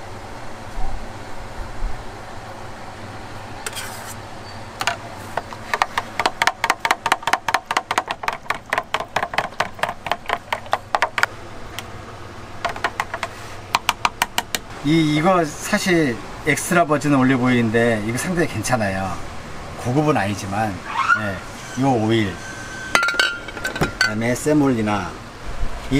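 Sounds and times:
steady low hum: 0.0 - 25.9
wooden stick knocking plastic pan: 4.8 - 11.3, 12.6 - 14.6.

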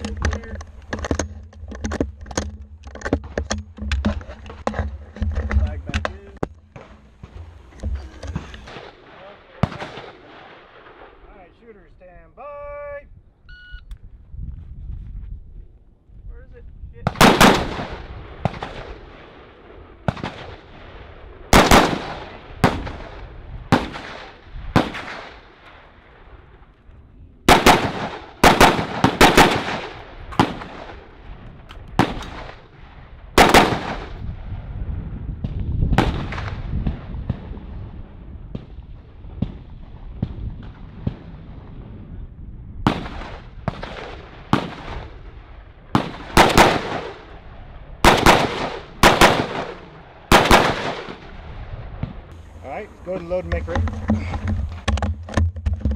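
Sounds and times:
rifle shots with echo: 5.4 - 11.4, 17.1 - 26.4, 27.5 - 34.6, 35.4 - 37.8, 42.8 - 52.3.

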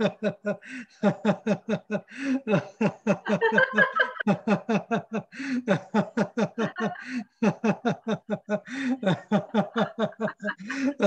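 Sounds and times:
person laughing: 0.0 - 11.0
gasping in-breaths: 0.6 - 1.2, 2.1 - 2.8, 5.3 - 6.0, 6.9 - 7.4, 8.6 - 9.3, 10.4 - 11.0.

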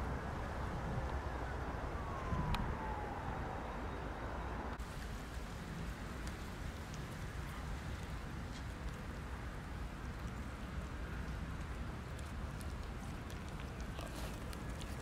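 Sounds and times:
distant siren wail: 0.0 - 4.8
low outdoor rumble: 0.0 - 15.0
faint clicks: 10.0 - 15.0.

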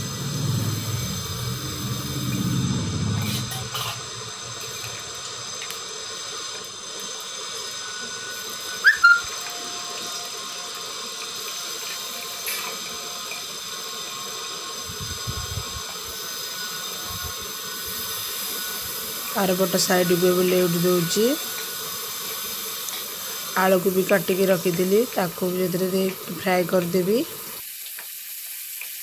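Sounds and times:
fish sizzling in oil: 0.0 - 29.0
sharp high squeak: 7.8 - 9.4.

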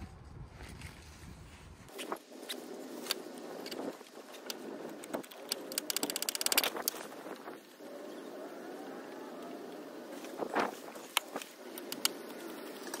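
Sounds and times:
socket ratchet clicking: 5.3 - 6.8.

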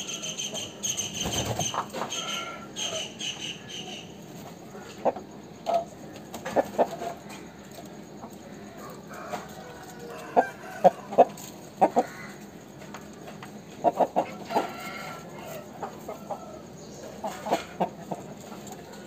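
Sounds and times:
chicken drawn-out call: 0.0 - 5.2, 8.4 - 12.6, 13.9 - 19.0
chickens clucking: 0.0 - 19.0.

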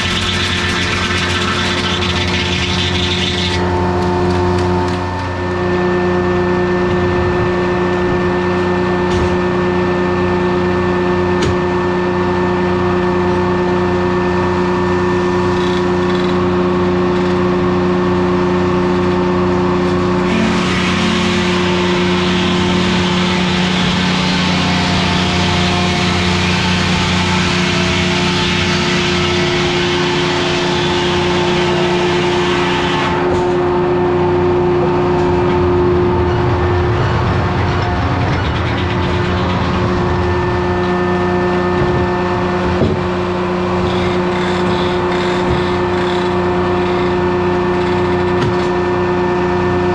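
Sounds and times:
saw blade cutting log: 0.0 - 3.7, 19.9 - 33.7, 43.7 - 48.7
diesel engine running: 0.0 - 49.9.

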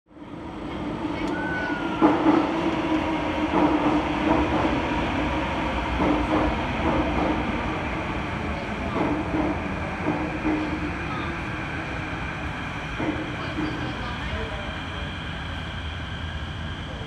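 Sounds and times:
train interior hum: 0.1 - 17.0.

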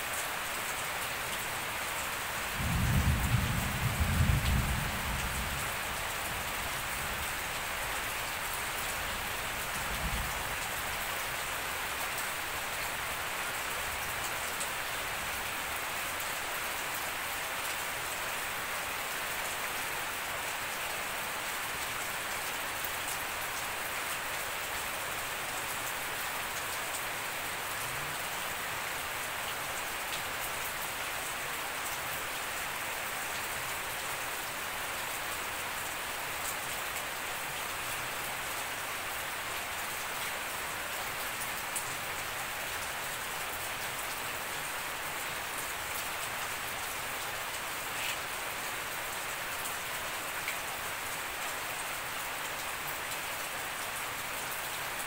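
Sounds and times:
rain falling on grass and leaves: 0.0 - 55.0
thunder rumbling: 2.6 - 5.6.

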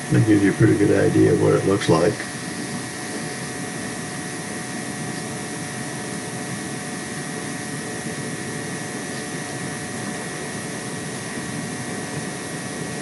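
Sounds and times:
faint whining tones: 0.0 - 13.0
steady machine drone: 0.0 - 13.0.

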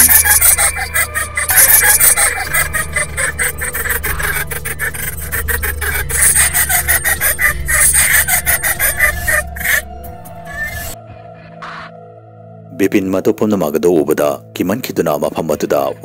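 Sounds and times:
raspy cackling laugh: 0.0 - 11.0.

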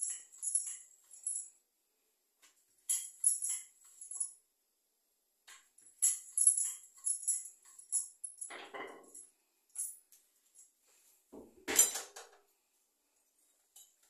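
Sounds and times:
metallic clinks of plates and utensils: 0.0 - 1.4
dishes clattering: 8.5 - 9.2.

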